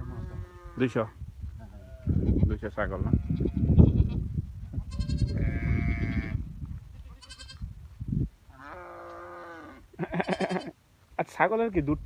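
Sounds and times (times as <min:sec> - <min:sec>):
goats bleating: 0:04.8 - 0:06.4, 0:07.0 - 0:07.6, 0:08.5 - 0:10.8.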